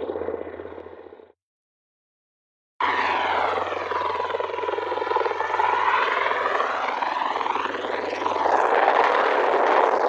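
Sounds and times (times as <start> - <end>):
low hum: 0.0 - 1.4
tiltrotor aircraft hovering: 0.0 - 1.4, 2.8 - 10.0.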